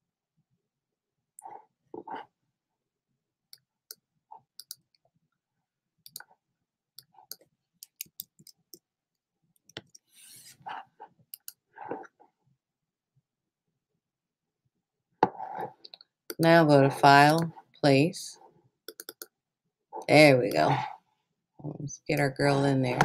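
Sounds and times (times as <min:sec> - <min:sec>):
keyboard and mouse clicking: 0:04.6 - 0:04.9, 0:06.0 - 0:06.3, 0:07.0 - 0:08.8, 0:18.9 - 0:19.3.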